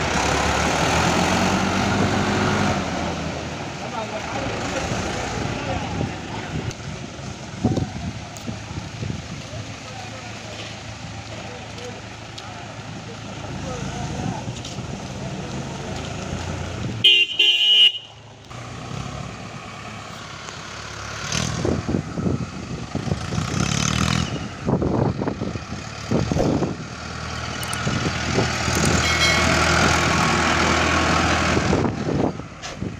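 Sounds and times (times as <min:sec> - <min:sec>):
tractor diesel engine running: 0:00.0 - 0:23.7, 0:24.4 - 0:32.9
vehicle horn: 0:17.0 - 0:18.2, 0:28.9 - 0:29.7.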